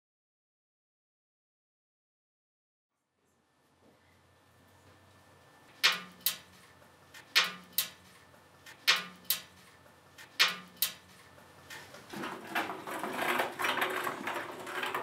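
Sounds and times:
sharp double clicks: 0:05.7 - 0:06.5, 0:07.2 - 0:08.0, 0:08.7 - 0:09.5, 0:10.2 - 0:11.0.

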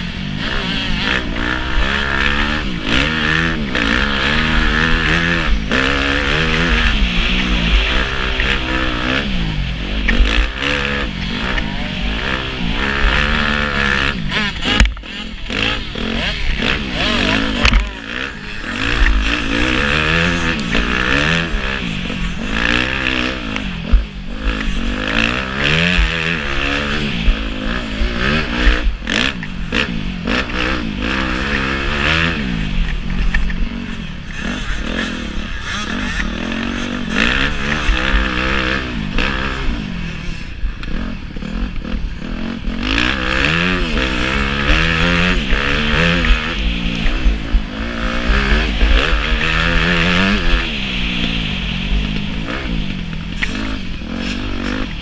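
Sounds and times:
motocross engine revving: 0:00.0 - 0:55.0.

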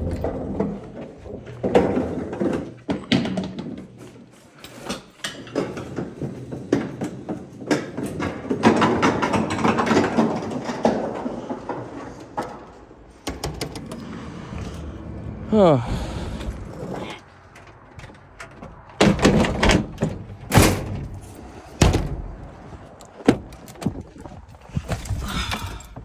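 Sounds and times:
door opening and shutting: 0:08.2 - 0:22.5.

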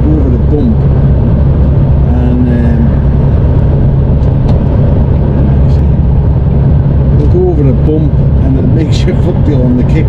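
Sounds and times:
truck engine and road drone: 0:00.0 - 0:10.0.

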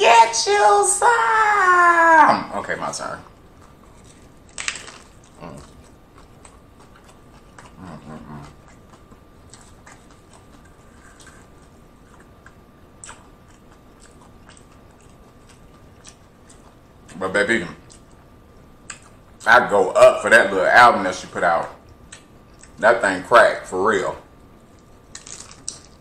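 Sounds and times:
chewing crunchy taco: 0:02.8 - 0:19.5, 0:21.8 - 0:22.8, 0:24.6 - 0:26.0.

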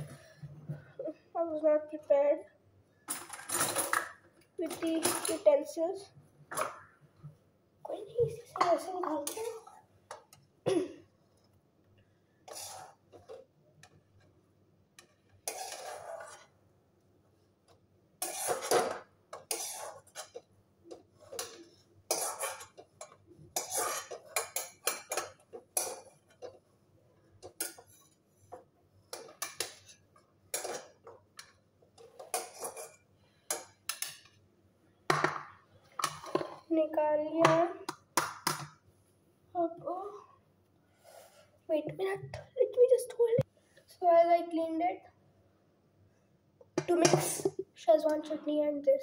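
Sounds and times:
metal utensil scraping a pan: 0:12.4 - 0:13.4, 0:15.0 - 0:16.5, 0:18.2 - 0:20.4, 0:21.1 - 0:26.6, 0:29.1 - 0:31.1, 0:32.0 - 0:34.2.

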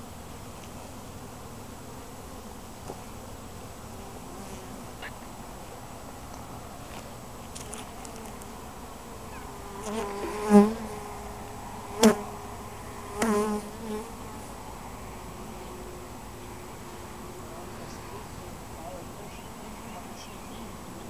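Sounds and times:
honeybees buzzing: 0:00.0 - 0:21.0
bee flying past microphone: 0:07.5 - 0:14.6.

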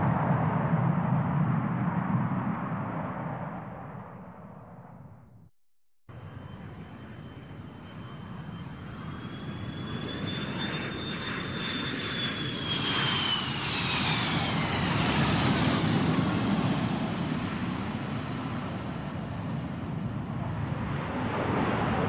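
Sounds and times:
jet engines whining and rumbling: 0:06.1 - 0:22.0.

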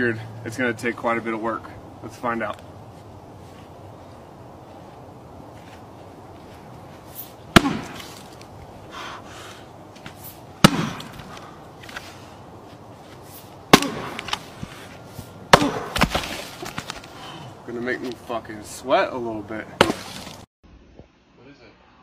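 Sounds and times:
axe chopping log: 0:07.5 - 0:08.3, 0:10.6 - 0:12.0, 0:13.7 - 0:14.4, 0:15.5 - 0:16.9, 0:19.8 - 0:20.4
log splitting: 0:07.5 - 0:08.5, 0:15.5 - 0:17.2, 0:19.8 - 0:20.4.

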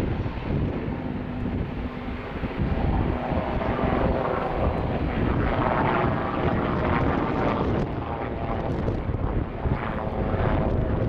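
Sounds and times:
helicopter rotor and turbine noise: 0:00.0 - 0:11.0
wind buffeting microphone: 0:00.0 - 0:11.0.

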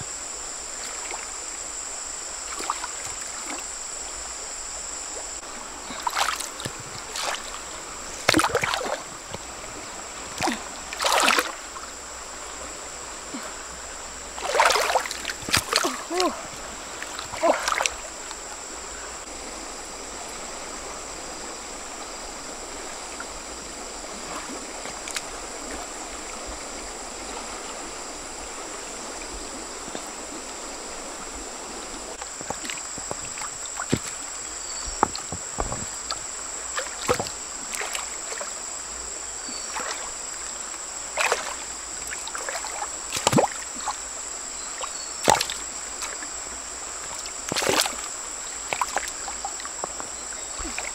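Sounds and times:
stream water flowing: 0:00.0 - 0:50.9
small splashes: 0:02.4 - 0:03.7, 0:05.8 - 0:11.9, 0:14.4 - 0:18.4, 0:24.1 - 0:25.9, 0:32.1 - 0:38.6, 0:39.4 - 0:44.0, 0:44.6 - 0:46.4, 0:47.0 - 0:50.9.

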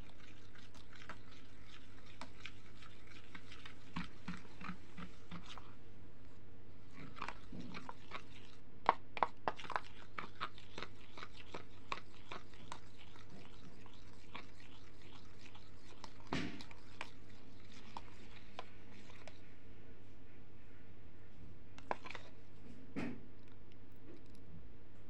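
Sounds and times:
metal spoon scraping paste in bowl: 0:00.0 - 0:05.8, 0:06.9 - 0:19.4, 0:21.8 - 0:22.4.

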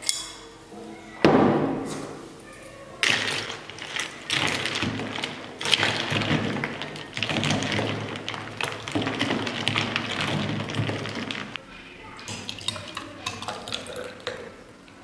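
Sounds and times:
ice cubes clacking in container: 0:03.0 - 0:11.6, 0:12.3 - 0:14.5
liquid sloshing: 0:03.0 - 0:11.6, 0:12.2 - 0:15.0.

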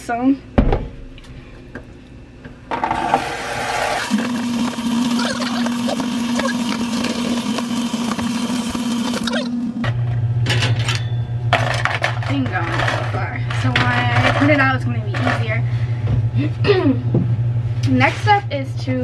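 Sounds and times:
steady hum: 0:00.0 - 0:19.0
tap water running into sink: 0:04.1 - 0:09.3.

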